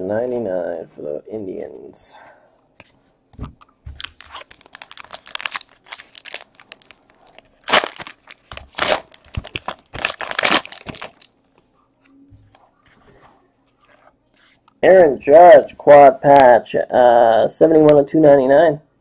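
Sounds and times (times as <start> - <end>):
wrapper tearing and crinkling: 3.9 - 11.4.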